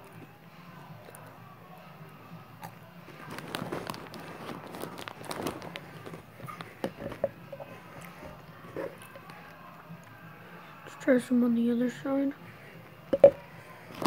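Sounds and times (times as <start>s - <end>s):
crunchy snack chewing: 2.6s - 7.2s.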